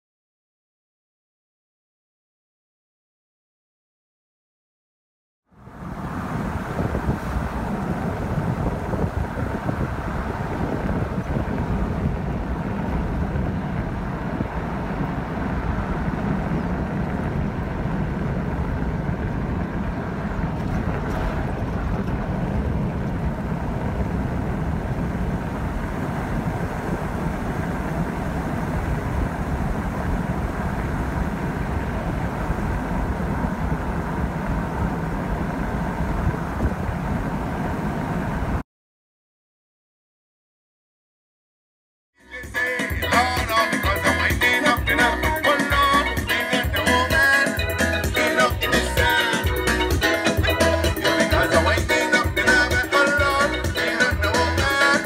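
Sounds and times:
car road noise from inside: 0:05.5 - 0:38.6
wind rumbling on microphone: 0:05.5 - 0:38.6.

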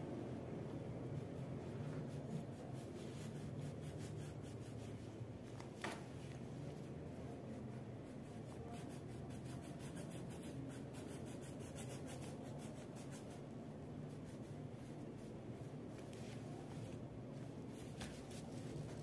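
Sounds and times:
steady low hum: 0:00.0 - 0:19.0
crayon scratching on paper: 0:07.5 - 0:13.5.

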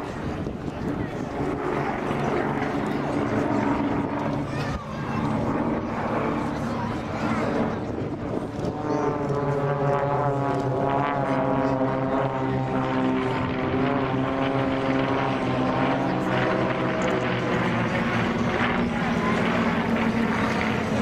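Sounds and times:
propeller planes droning overhead: 0:00.0 - 0:21.0.

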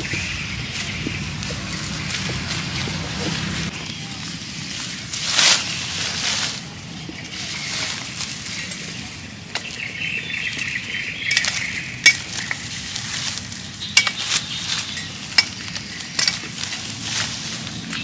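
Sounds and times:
knife chopping plant stems: 0:11.3 - 0:18.0.

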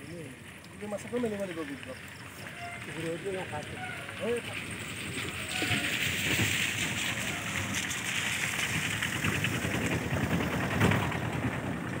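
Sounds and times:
water rushing and splashing on net: 0:02.8 - 0:11.5.

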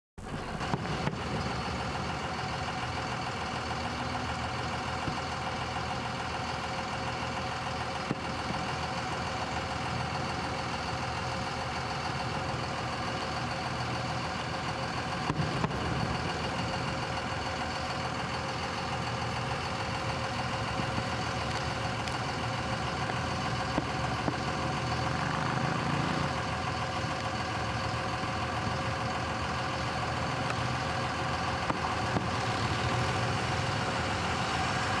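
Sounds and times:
vehicle engine idling: 0:00.2 - 0:35.0.

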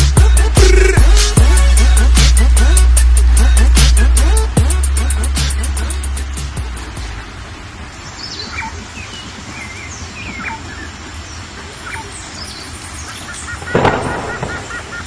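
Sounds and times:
steady hiss: 0:00.0 - 0:15.0
birds chirping and whistling: 0:07.9 - 0:15.0
loud harsh bird call: 0:08.1 - 0:15.0.

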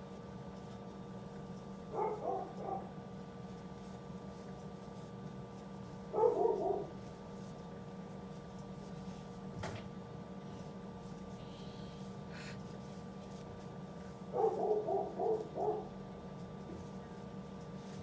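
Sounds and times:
steady low hum: 0:00.0 - 0:18.0
dog barking: 0:01.9 - 0:03.0, 0:06.1 - 0:07.0, 0:14.3 - 0:15.9.

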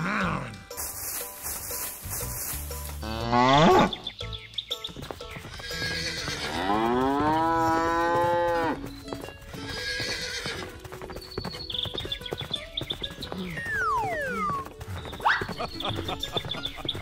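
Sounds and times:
cow mooing: 0:03.0 - 0:03.9, 0:05.9 - 0:08.8.

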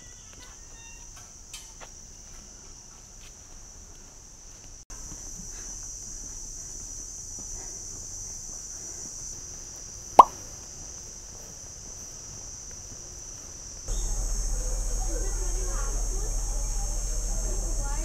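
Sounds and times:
insects chirring: 0:00.0 - 0:18.0
low rumble: 0:13.9 - 0:18.0.

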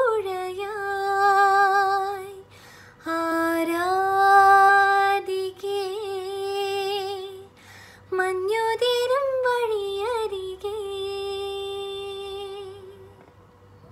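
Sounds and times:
woman singing unaccompanied: 0:00.0 - 0:13.2
woman breathing: 0:02.5 - 0:03.0, 0:07.5 - 0:08.1.

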